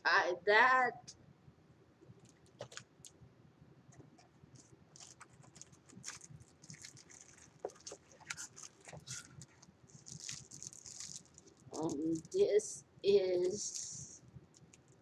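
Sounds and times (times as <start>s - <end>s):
plastic packaging crinkling: 2.2s - 3.2s, 4.1s - 12.4s, 13.4s - 15.0s.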